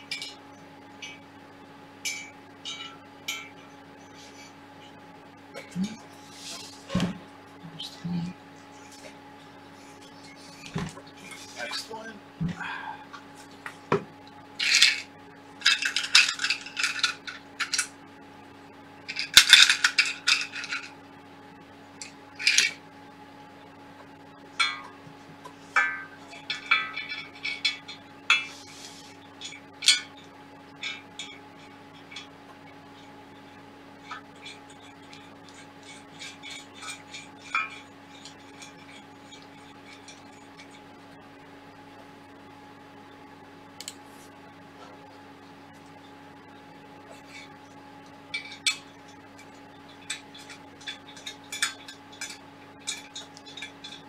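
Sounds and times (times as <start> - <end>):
faint steady hum: 0.0 - 54.0
metal parts clinking: 14.6 - 15.0, 15.6 - 17.9, 19.1 - 20.9, 22.4 - 22.8, 48.4 - 48.8, 50.0 - 54.0.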